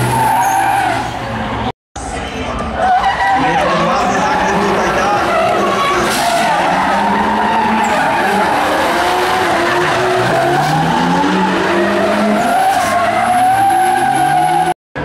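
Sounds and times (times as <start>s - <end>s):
tyres screeching: 0.0s - 1.4s, 2.8s - 14.8s
car engines revving hard: 3.3s - 14.8s.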